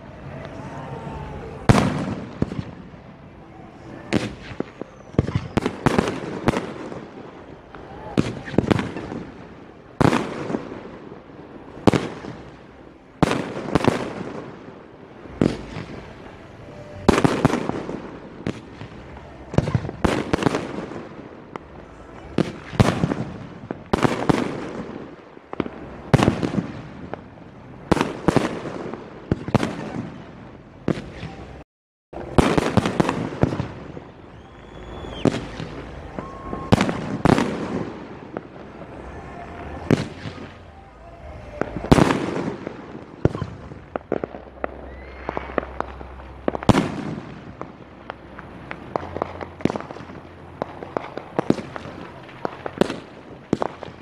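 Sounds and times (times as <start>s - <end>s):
fireworks bursting: 0.0s - 31.6s, 32.2s - 54.0s
rumbling echo: 32.2s - 54.0s.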